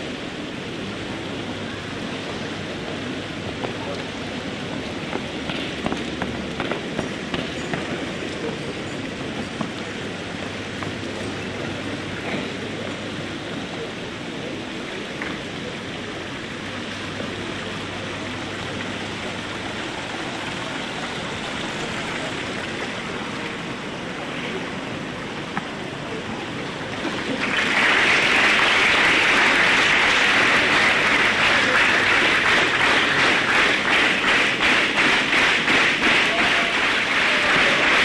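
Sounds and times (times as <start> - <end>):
steady background hiss: 0.0 - 38.0
audience applause: 27.0 - 38.0.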